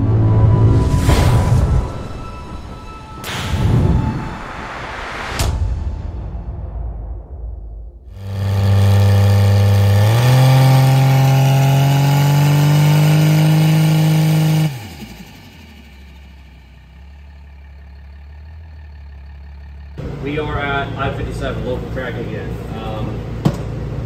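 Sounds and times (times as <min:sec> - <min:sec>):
low drone: 0:00.0 - 0:13.4
diesel truck engine running hard: 0:08.1 - 0:24.0.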